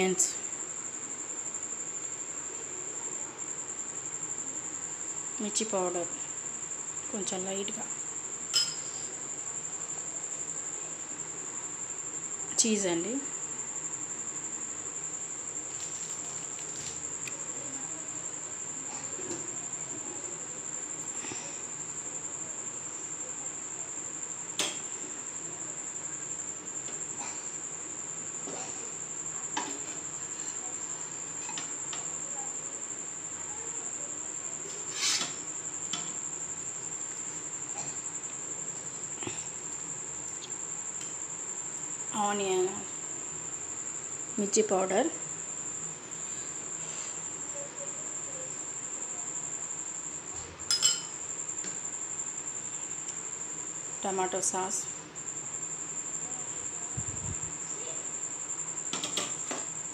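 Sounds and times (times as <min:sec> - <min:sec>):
cricket trilling: 0:00.0 - 0:59.9.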